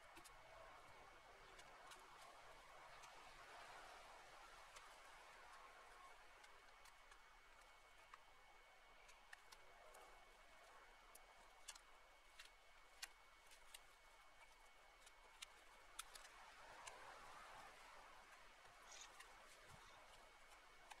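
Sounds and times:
twigs snapping and crackling: 11.2s - 16.4s.

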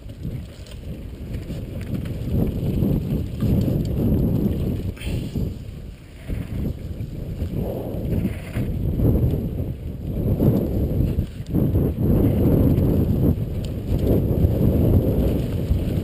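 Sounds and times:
tyres on loose dirt: 0.0s - 9.5s
bike rattling over bumps: 0.0s - 16.0s
wind noise on microphone: 0.0s - 16.0s.

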